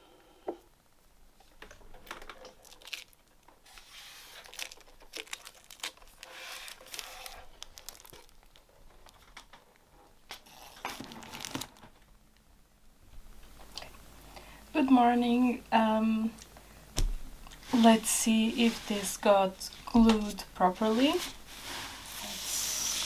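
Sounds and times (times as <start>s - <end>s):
paper crinkling and rustling: 1.6s - 9.7s, 10.3s - 12.0s.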